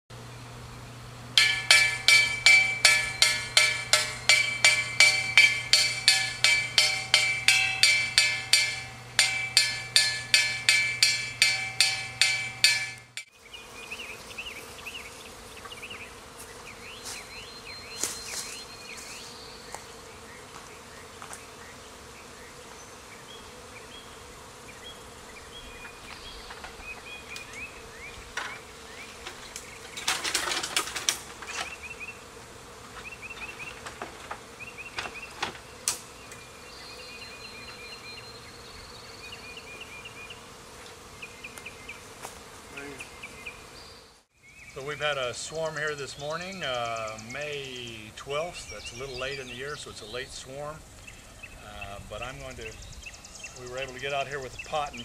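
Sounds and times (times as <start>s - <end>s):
honeybee swarm humming: 0.1s - 55.0s
birds chirping: 0.2s - 30.1s, 33.0s - 40.5s, 41.1s - 55.0s
rapid ringing percussive strikes: 1.4s - 13.3s.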